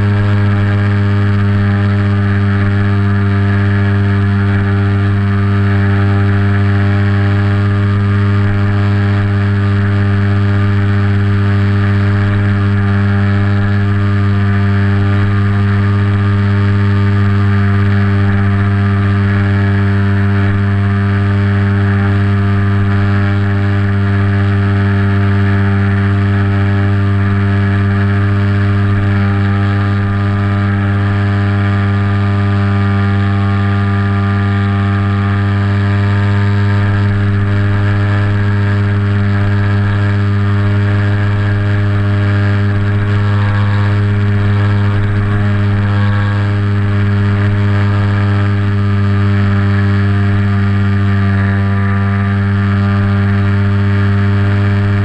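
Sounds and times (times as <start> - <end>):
motor and propeller drone: 0.0 - 55.0.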